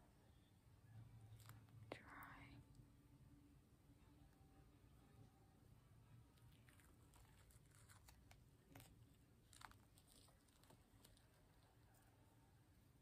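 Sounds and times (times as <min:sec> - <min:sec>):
peel-off face mask crackling: 0:06.3 - 0:12.1.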